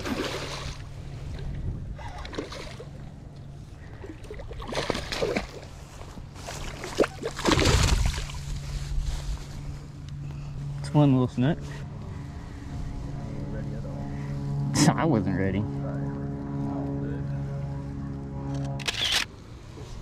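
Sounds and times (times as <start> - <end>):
fish splashing in water: 0.0 - 1.0, 3.9 - 8.5
steady low hum: 0.0 - 20.0.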